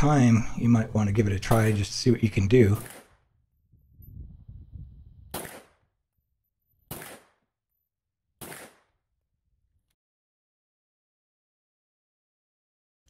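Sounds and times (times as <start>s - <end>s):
pistol shots: 1.4s - 2.0s, 2.7s - 3.2s, 5.3s - 5.8s, 6.9s - 7.4s, 8.4s - 9.0s.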